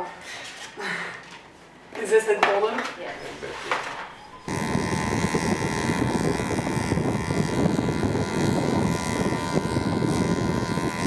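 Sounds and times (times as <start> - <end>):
motorcycle engine whine: 4.3 - 11.0.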